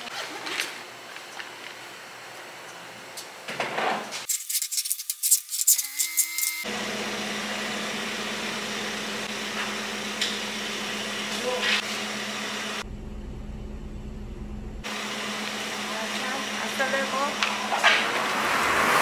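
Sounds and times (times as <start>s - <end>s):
steady machine hum: 6.6s - 17.7s
deep rumble: 12.8s - 14.9s.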